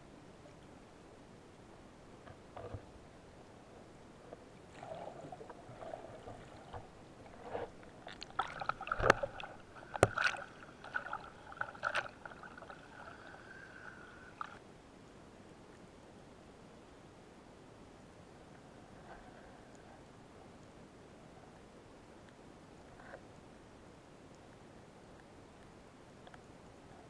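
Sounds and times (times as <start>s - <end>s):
water splashing and sloshing: 4.3s - 14.6s.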